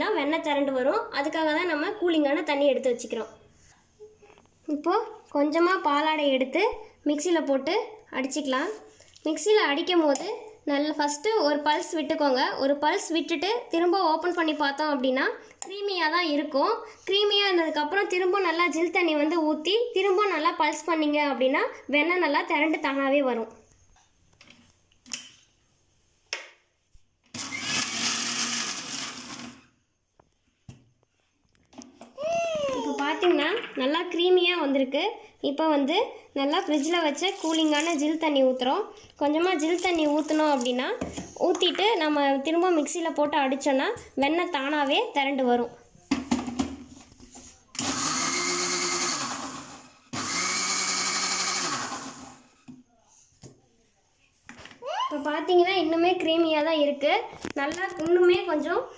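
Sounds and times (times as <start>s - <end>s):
mixer grinder whirring: 27.3s - 29.7s, 47.8s - 52.7s.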